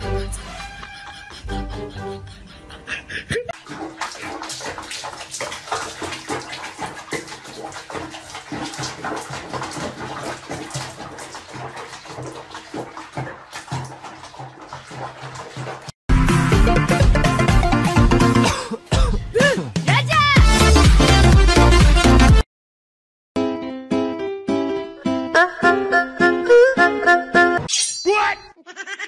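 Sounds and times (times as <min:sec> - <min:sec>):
water drips: 0:03.6 - 0:15.9
water sloshing in a basin: 0:03.6 - 0:16.0.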